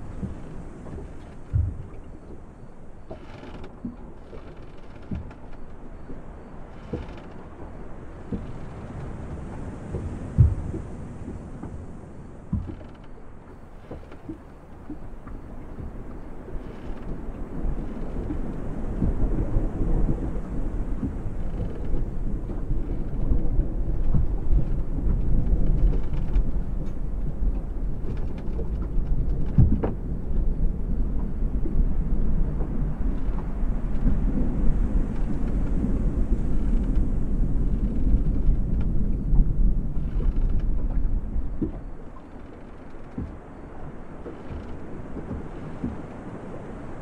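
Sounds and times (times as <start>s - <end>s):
waves lapping against hull: 0.0s - 47.0s.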